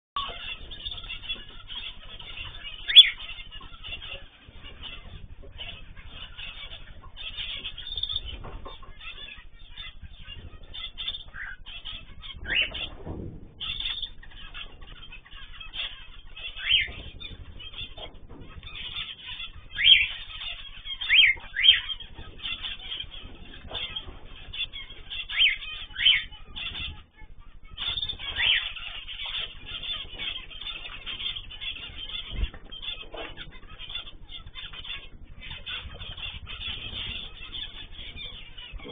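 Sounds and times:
cage birds chirping: 0:00.2 - 0:38.9
sharp falling bird calls: 0:00.2 - 0:38.9.

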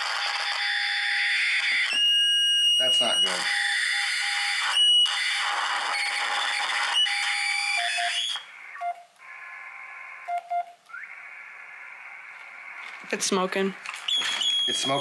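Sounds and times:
radio hiss: 0:08.4 - 0:10.3, 0:10.9 - 0:15.0
steady whistling tones: 0:10.9 - 0:12.9, 0:14.0 - 0:15.0
morse tone blips: 0:14.1 - 0:15.0.

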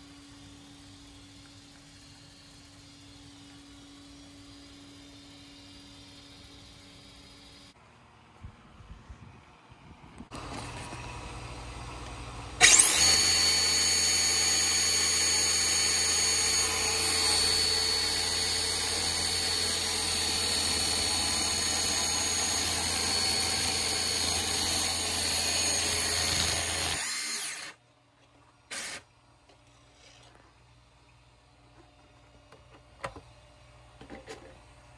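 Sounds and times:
electric motor whining: 0:12.6 - 0:27.8.

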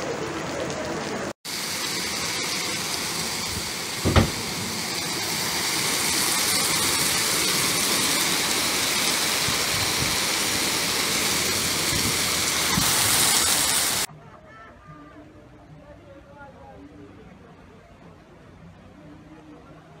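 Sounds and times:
heavy rain hissing: 0:00.0 - 0:14.1
short thump: 0:04.0 - 0:04.5.

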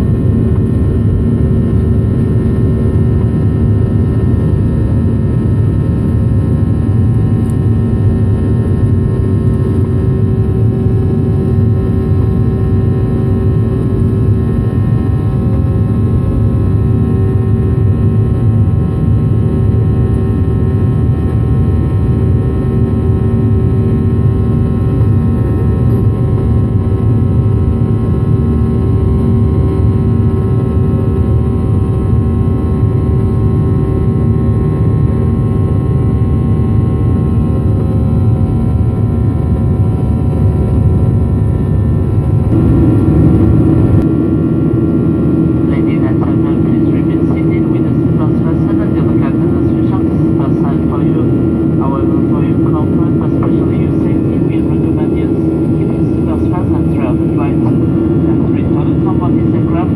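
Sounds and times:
jet engine roar in cabin: 0:00.0 - 0:59.9
steady engine tones: 0:36.8 - 0:59.9.

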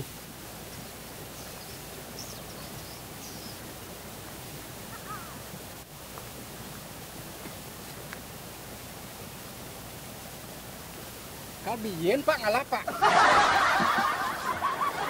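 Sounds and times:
outdoor background hiss: 0:00.0 - 0:15.0
faint bird chirps: 0:01.3 - 0:03.8.

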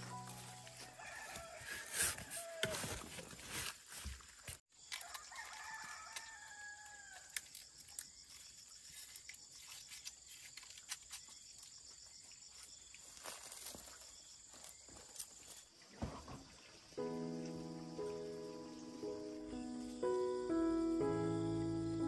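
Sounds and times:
rooster crowing: 0:00.8 - 0:03.0, 0:05.0 - 0:07.3.

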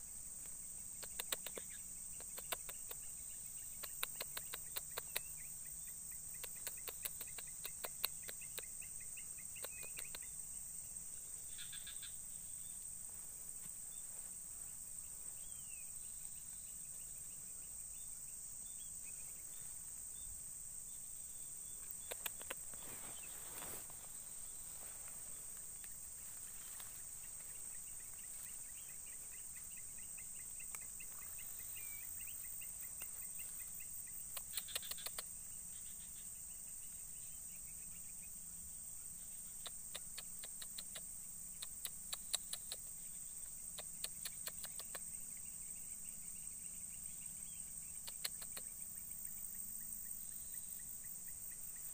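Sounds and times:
high-pitched insect chorus: 0:00.0 - 0:51.9
bird chirping faintly: 0:00.8 - 0:38.4.

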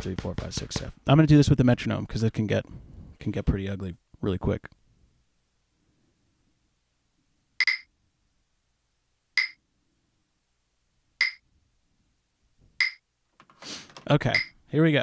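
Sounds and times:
metronome clicking: 0:07.6 - 0:07.8, 0:12.8 - 0:13.0.

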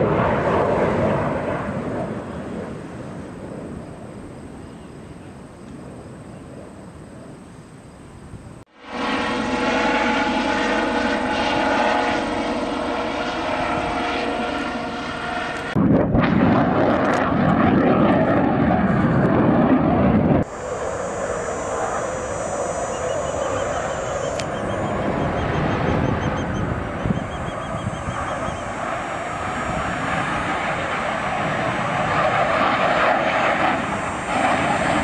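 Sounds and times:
distant jet rumble: 0:00.0 - 0:35.0
helicopter engine and rotor whine: 0:08.7 - 0:35.0.

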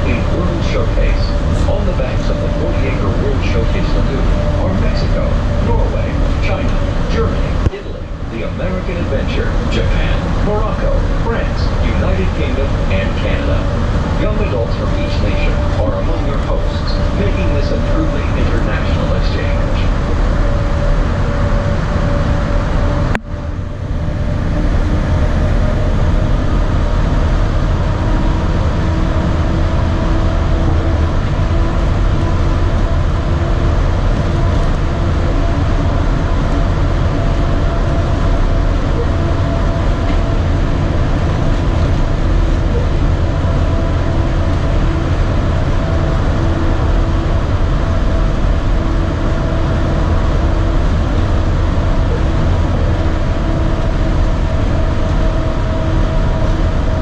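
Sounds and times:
monorail train rumble: 0:00.0 - 0:57.0
tonal drive hum: 0:00.0 - 0:57.0.

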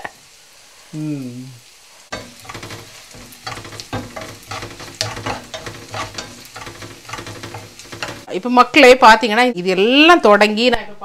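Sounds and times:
food sizzling in oil: 0:00.0 - 0:10.0
wooden spatula scraping pan: 0:02.1 - 0:08.3.

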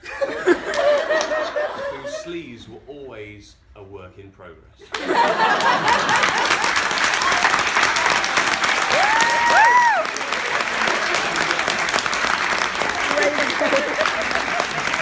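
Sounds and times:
audience applauding: 0:04.9 - 0:15.0
crowd cheering calls: 0:05.3 - 0:15.0.

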